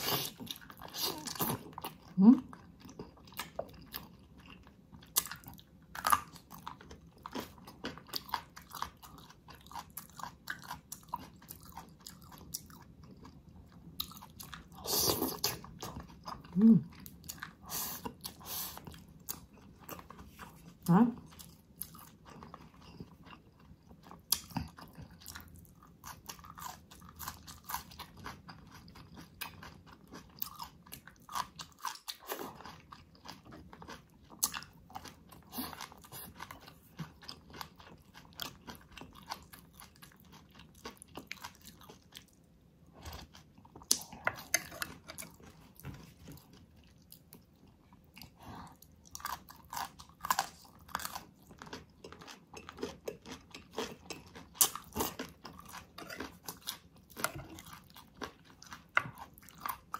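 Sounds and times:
chewing food: 0.0 - 59.9
crunching crisp food: 48.3 - 59.9.

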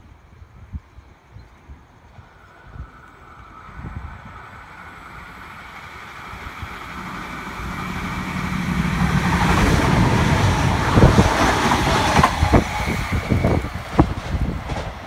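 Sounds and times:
diesel railcar passing: 0.0 - 15.0
sharp train clacks: 4.6 - 15.0.

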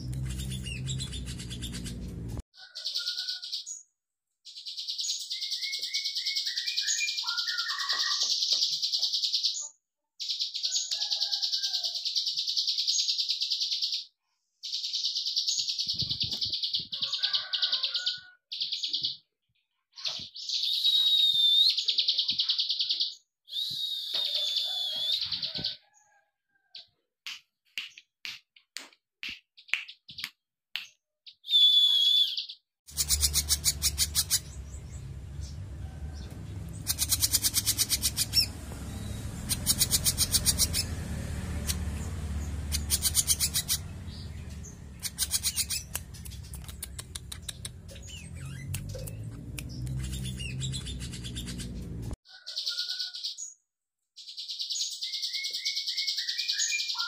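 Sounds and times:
bird falling whistled notes: 23.5 - 25.6, 31.5 - 32.4
bird clicking rattles: 45.0 - 47.8.

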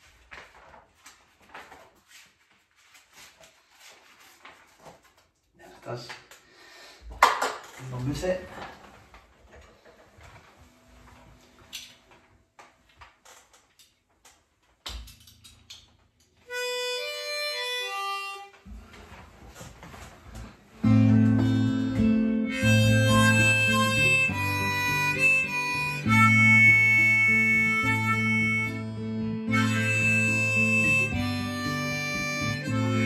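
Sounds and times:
harmonica melody: 16.4 - 18.7, 20.8 - 33.0
strummed acoustic guitar: 20.8 - 33.0.

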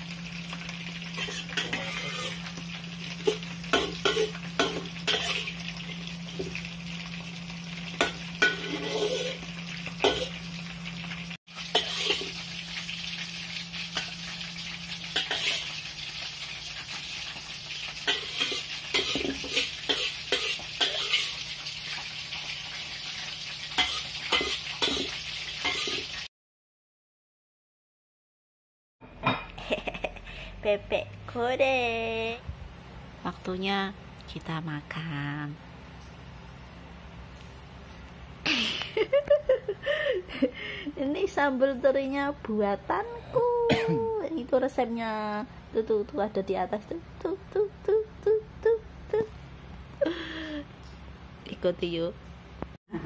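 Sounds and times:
vegetables sizzling in a wok: 0.0 - 26.3, 29.6 - 52.8
metal spatula scraping a wok: 1.1 - 2.6, 3.2 - 5.6, 8.0 - 10.4, 11.6 - 12.4, 15.1 - 15.8, 17.9 - 21.4, 23.8 - 26.2.

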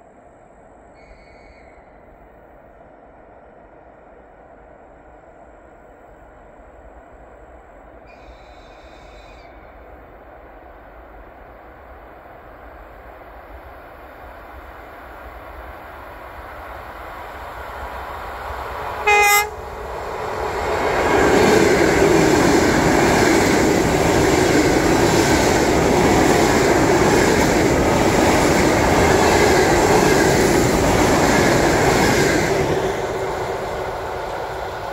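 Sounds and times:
train horn blast: 19.0 - 19.7
train wheels clattering on rails: 19.9 - 34.9.

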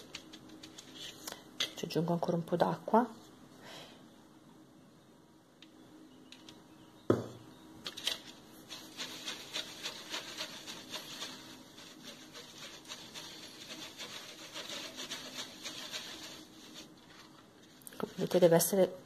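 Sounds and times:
sharp knock: 7.1 - 7.4
paintbrush scraping a plastic plate: 8.6 - 18.4.

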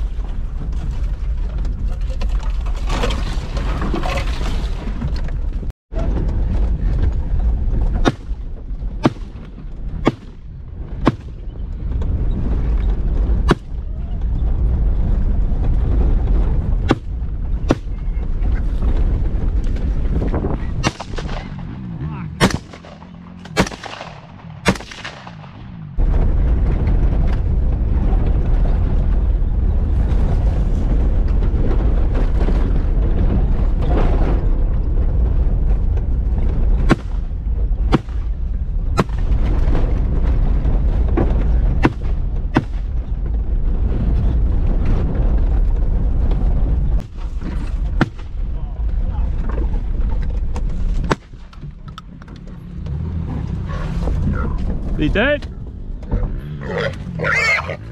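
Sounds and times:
vehicle rumbling over rough ground: 0.0 - 57.9
gunshots with ringing tail: 20.8 - 25.9.

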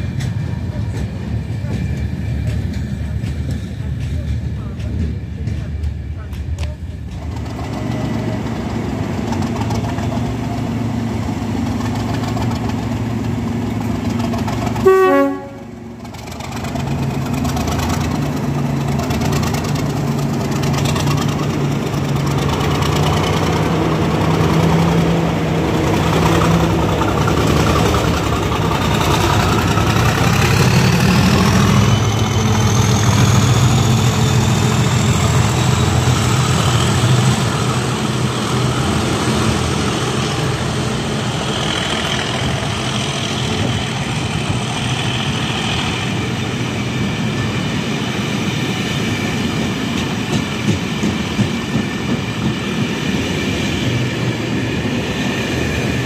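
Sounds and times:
diesel engine drone: 6.2 - 48.8
locomotive horn toot: 14.8 - 15.8.

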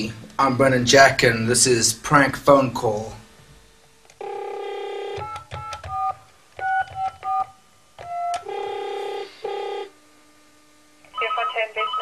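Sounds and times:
telephone dial tone: 4.2 - 9.9.

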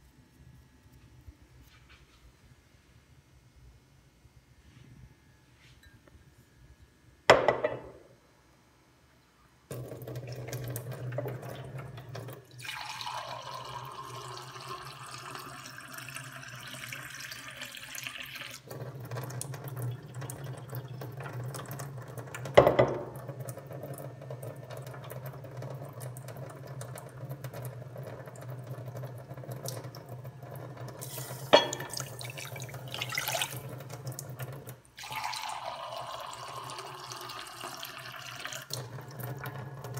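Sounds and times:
cookware knocks: 7.3 - 8.1, 22.6 - 23.1, 31.6 - 32.0
water running: 9.7 - 39.9
water poured onto tea leaves: 12.6 - 18.7, 35.0 - 38.9.

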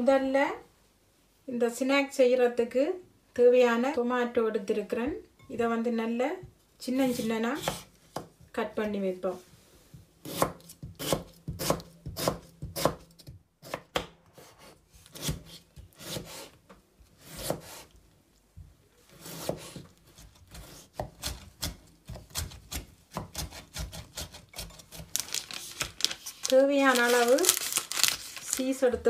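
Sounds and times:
knife chopping on wooden board: 7.1 - 8.3, 10.2 - 16.5, 17.2 - 17.8, 19.2 - 25.2.

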